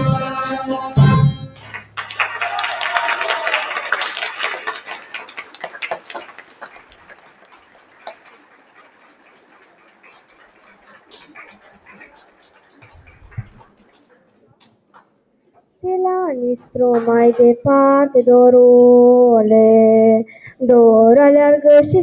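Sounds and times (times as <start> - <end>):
audience clapping: 1.5 - 15.2.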